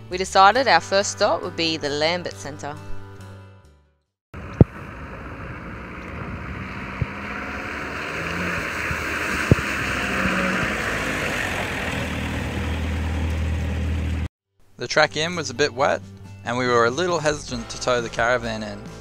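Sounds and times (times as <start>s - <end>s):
water splashing: 4.4s - 13.8s
vehicle engine running: 4.4s - 14.3s.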